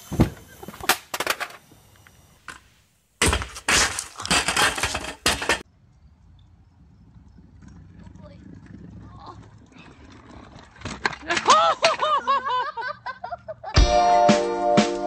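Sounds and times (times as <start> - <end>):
scooter crashing on stone steps: 0.1 - 1.6, 3.2 - 5.6, 7.6 - 12.2.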